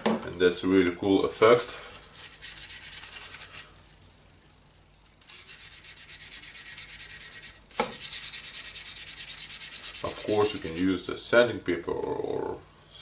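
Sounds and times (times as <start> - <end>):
wire brush scrubbing metal: 1.2 - 3.7, 5.2 - 10.9.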